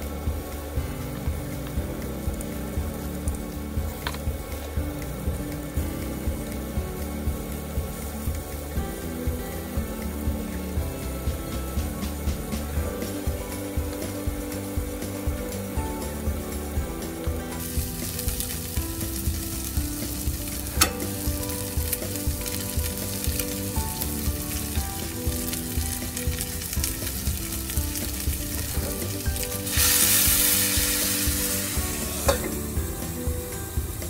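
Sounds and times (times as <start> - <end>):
liquid hissing in hot pan: 0.0 - 34.0
meat sizzling in frying pan: 0.0 - 34.0
pan lid knock: 32.1 - 32.7.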